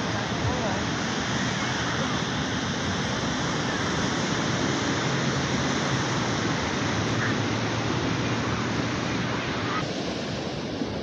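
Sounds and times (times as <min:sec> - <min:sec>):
ocean surf breaking on beach: 0:00.0 - 0:11.0.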